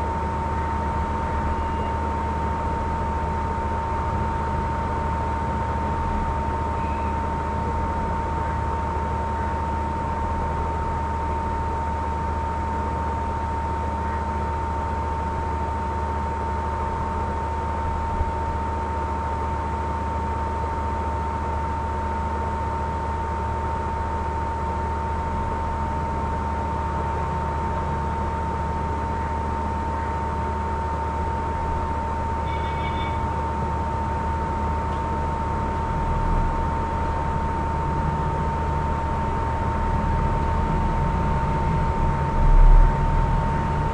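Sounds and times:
high-pitched electrical whine: 26.8 - 34.9.

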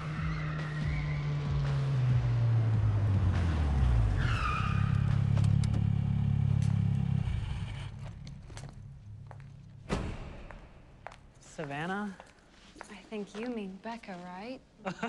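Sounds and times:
tire squeal: 0.0 - 1.8, 3.7 - 6.2
car engine slowing: 0.0 - 9.9
car engine idling: 0.8 - 9.9.

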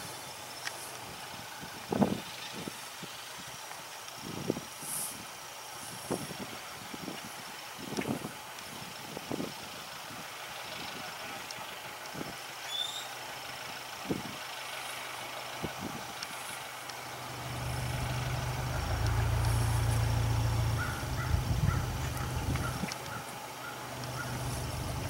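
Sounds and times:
low steady rumble: 0.0 - 25.0
short high chirp: 12.7 - 13.1.

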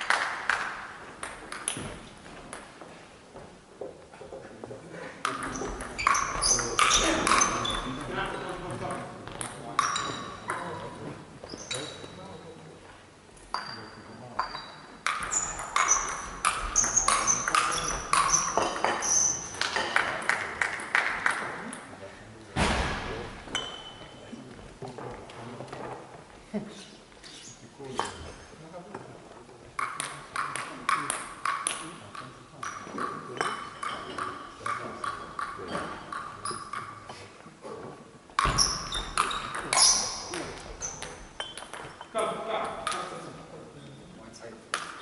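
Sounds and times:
table tennis ball bouncing: 0.1 - 2.8, 5.2 - 10.8, 14.4 - 21.9, 29.8 - 37.0, 38.4 - 42.1, 44.7 - 45.0
table tennis ball hit: 15.0 - 21.5.

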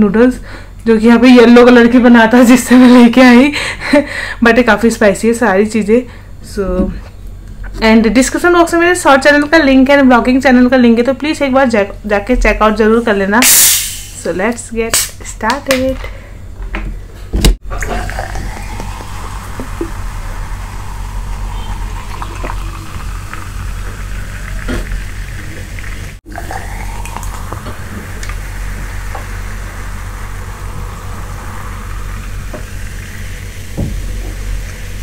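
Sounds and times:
carbonated drink fizzing: 17.6 - 35.0
fizzy drink pouring into a glass: 17.7 - 34.8.

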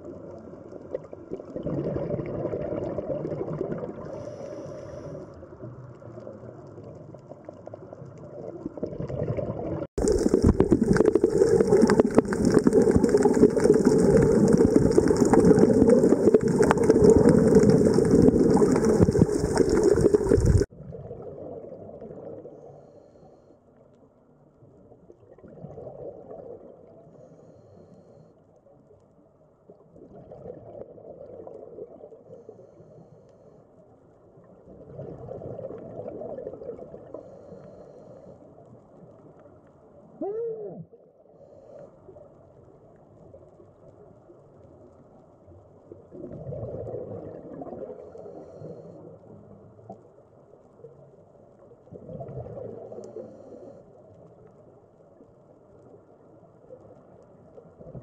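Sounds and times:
faint low water sound: 0.0 - 58.0
loud underwater rushing water: 9.1 - 20.7.

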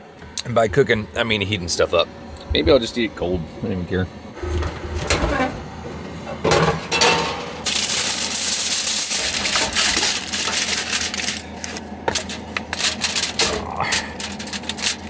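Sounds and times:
rustling hiss of food: 7.7 - 15.0.

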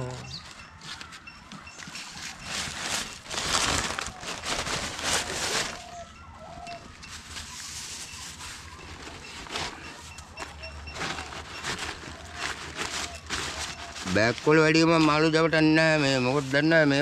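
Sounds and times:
bird chirps: 0.0 - 2.5
leaf and plastic bag rustling: 0.0 - 17.0.

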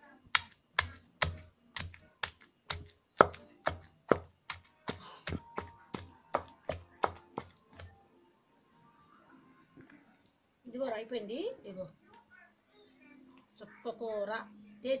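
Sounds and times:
pestle pounding in stone mortar: 0.4 - 7.9.

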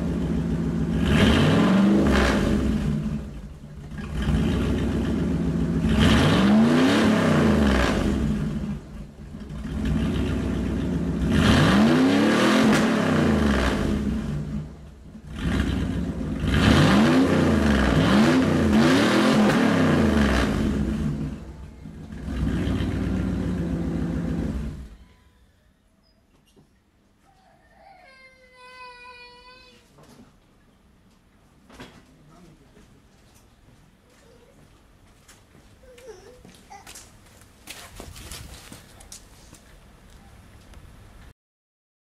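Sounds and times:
engine revving loudly: 0.0 - 3.3, 3.9 - 8.8, 9.5 - 21.5, 22.1 - 25.0.

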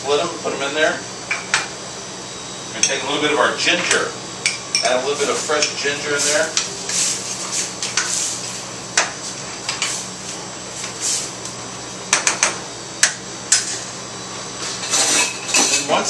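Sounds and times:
kitchen extractor hood hum: 0.0 - 16.0
utensils and dishes clinking: 14.8 - 16.0.

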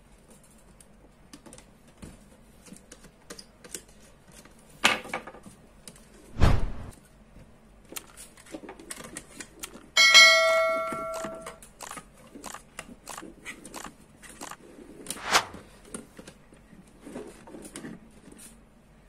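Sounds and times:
clicks and rustles of wires: 0.0 - 6.3, 6.9 - 10.0, 11.1 - 18.7
heavy thump: 6.4 - 6.9
sharp knock: 6.4 - 6.9.

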